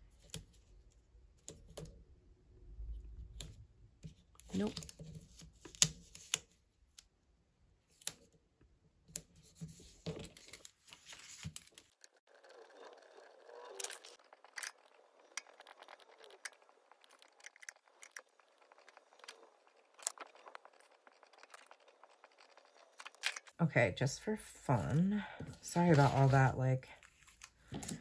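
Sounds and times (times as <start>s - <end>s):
paper pages handled: 9.4s - 23.5s, 25.8s - 28.0s.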